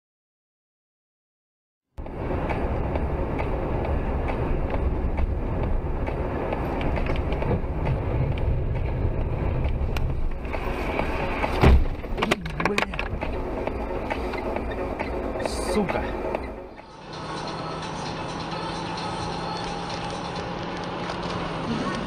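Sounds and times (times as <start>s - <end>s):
car road and engine noise: 2.0s - 22.0s
heavy thump: 11.4s - 12.4s.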